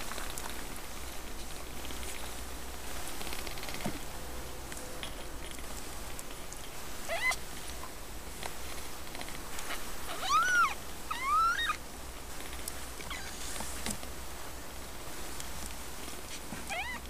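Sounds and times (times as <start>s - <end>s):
kittens mewing: 7.0s - 7.4s, 9.7s - 11.8s, 13.0s - 13.4s, 16.7s - 17.0s.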